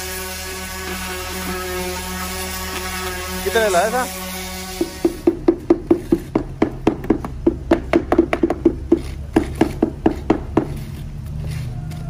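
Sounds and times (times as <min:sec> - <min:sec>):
hammer knocking on wood: 0:04.8 - 0:10.8.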